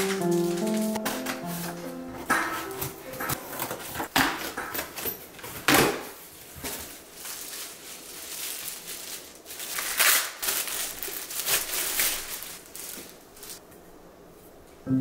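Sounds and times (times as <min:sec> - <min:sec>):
plastic bag crinkling: 0:06.3 - 0:13.6.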